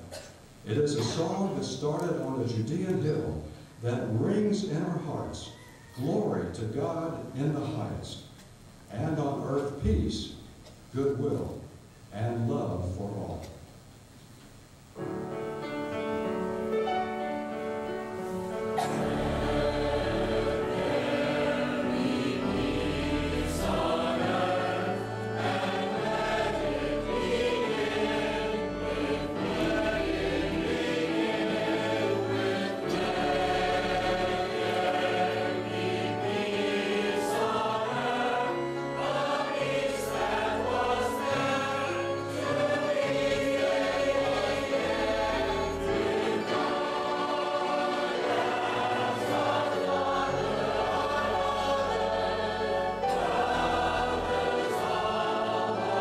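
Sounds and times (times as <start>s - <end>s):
church choir singing: 15.0s - 56.0s.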